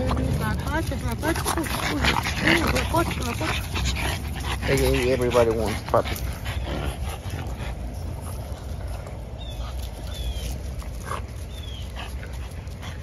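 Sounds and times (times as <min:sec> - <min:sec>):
puppies squeaking: 0:00.0 - 0:08.2
airplane rumbling overhead: 0:00.0 - 0:13.0.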